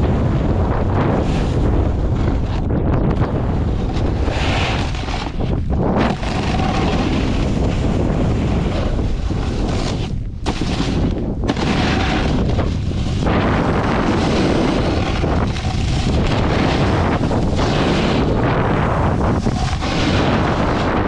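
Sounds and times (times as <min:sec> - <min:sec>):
wind buffeting microphone: 0:00.0 - 0:21.0
snowboard scraping snow: 0:00.1 - 0:02.7, 0:03.4 - 0:21.0.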